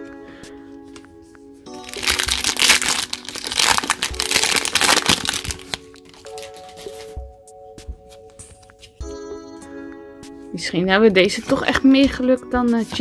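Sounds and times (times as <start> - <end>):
foil wrapper crinkling and tearing: 1.8 - 7.1.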